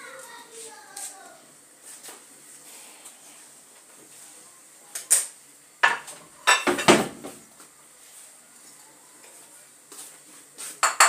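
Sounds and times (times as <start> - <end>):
kitchen utensils and dishes clattering: 5.2 - 7.4, 10.8 - 11.0.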